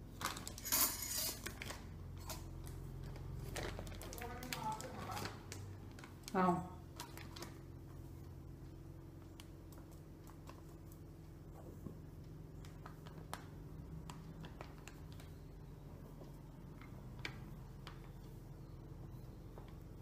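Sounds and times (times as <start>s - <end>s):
low steady hum: 0.0s - 20.0s
plastic bag crinkling: 0.1s - 0.8s, 1.4s - 7.6s.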